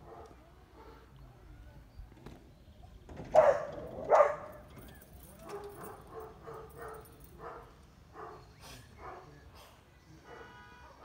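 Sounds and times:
dog barking: 3.3 - 4.6, 5.4 - 9.3, 10.3 - 10.6.

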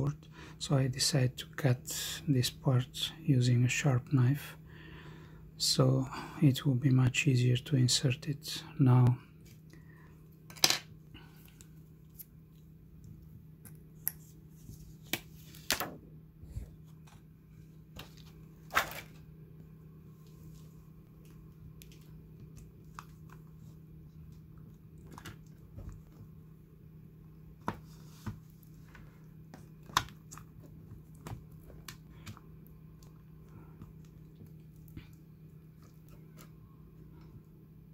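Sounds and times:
faint steady hum: 0.0 - 37.9.

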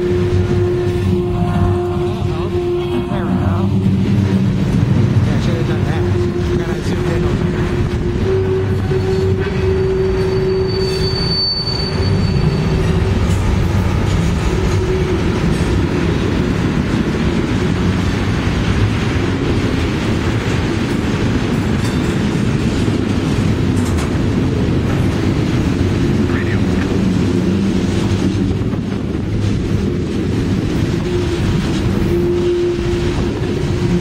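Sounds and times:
train wheels rumbling on rails: 0.0 - 34.0
high wheel squeal: 8.3 - 13.5.

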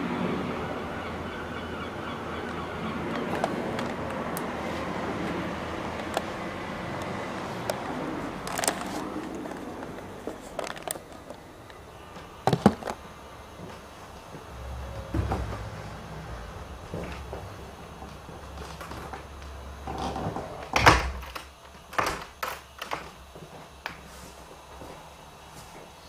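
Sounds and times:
jet aircraft passing overhead: 0.0 - 12.1.

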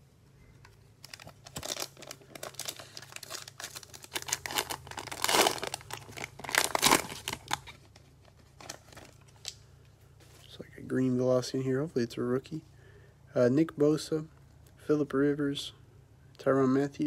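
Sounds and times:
plastic wrapper tearing and crinkling: 1.0 - 9.6.

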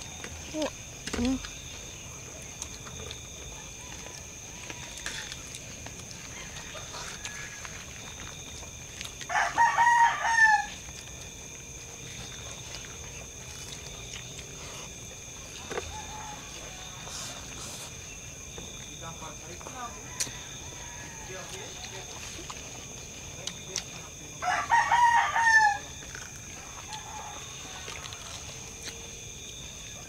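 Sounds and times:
rooster crowing: 6.2 - 7.9, 9.3 - 10.8, 15.6 - 17.6, 19.8 - 21.8, 24.4 - 26.0, 26.6 - 28.6.

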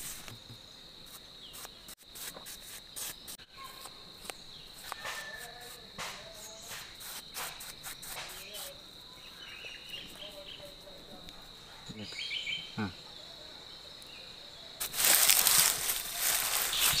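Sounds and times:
high-pitched insect drone: 14.8 - 17.0
paintbrush swishing on clay: 14.8 - 17.0.

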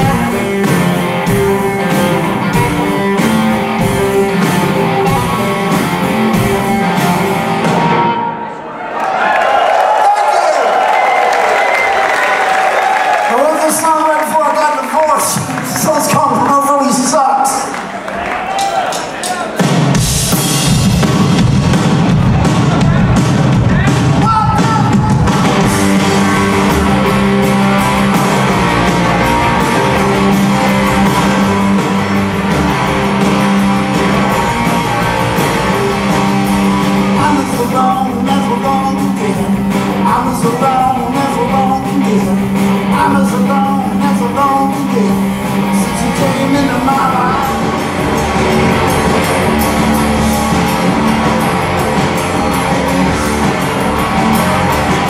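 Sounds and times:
rock band playing: 0.0 - 8.7, 9.4 - 55.0
person singing: 37.1 - 47.8.

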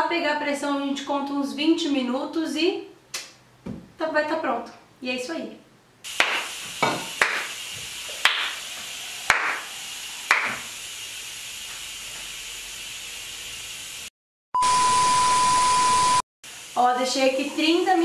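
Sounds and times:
steady hiss: 6.0 - 14.1, 16.5 - 18.0
knocks with short hiss: 6.1 - 9.7
loud steady beep: 14.6 - 16.2.

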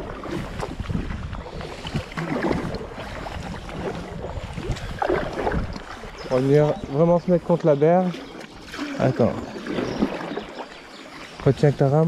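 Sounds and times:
wind on microphone: 0.0 - 7.5
paddles splashing in water: 0.0 - 12.0.

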